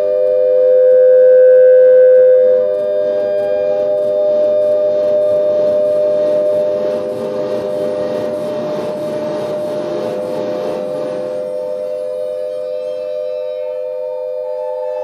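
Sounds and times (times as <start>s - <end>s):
ringing tones drone: 0.0s - 15.0s.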